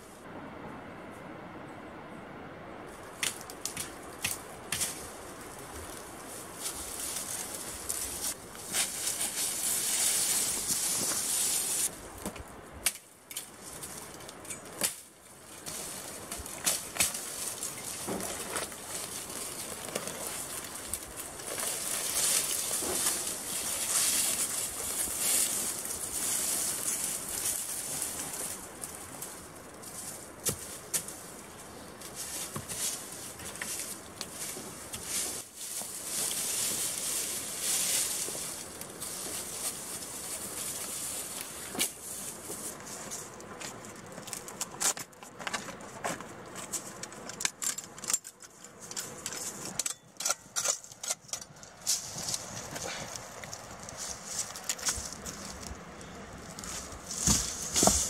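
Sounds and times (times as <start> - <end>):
branches and leaves rustling: 2.8 - 58.0
twigs snapping: 3.2 - 5.0, 12.2 - 29.4.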